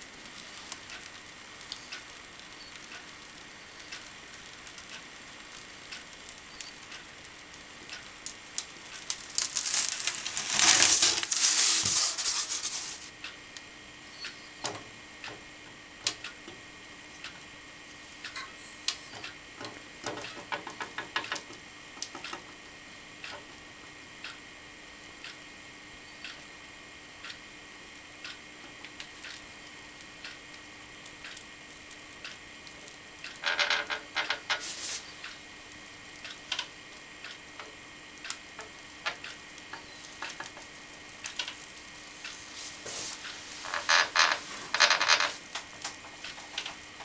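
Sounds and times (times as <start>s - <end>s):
faint steady hum: 0.0s - 47.0s
metal vise and boards scraping: 10.6s - 13.1s.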